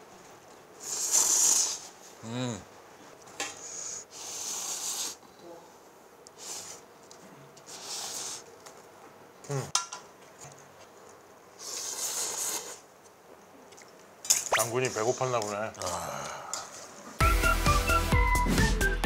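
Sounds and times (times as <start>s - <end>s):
people slurping noodles: 7.7s - 8.5s, 11.6s - 12.8s.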